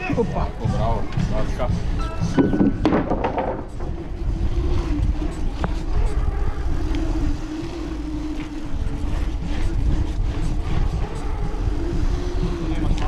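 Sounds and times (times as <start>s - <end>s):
bike tyres whirring: 0.0s - 13.0s
sharp knocks from bumps: 2.4s - 4.0s.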